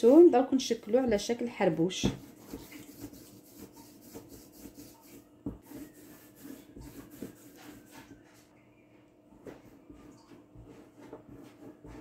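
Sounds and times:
hand rubbing paste on countertop: 0:01.2 - 0:08.5.

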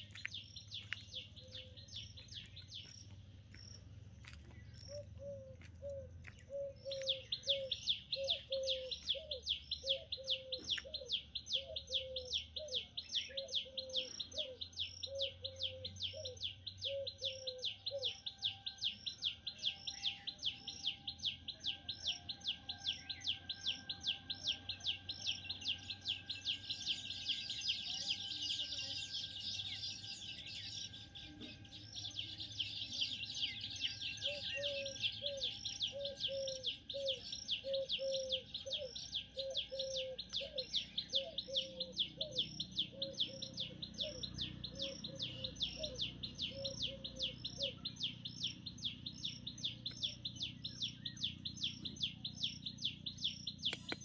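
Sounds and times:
high bird chirp: 0:00.0 - 0:54.0.

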